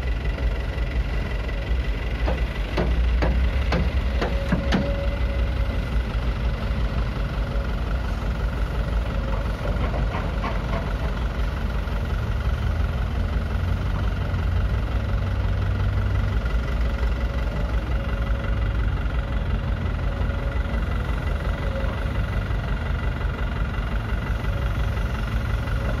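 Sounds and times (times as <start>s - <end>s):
diesel engine clattering: 0.0s - 26.0s.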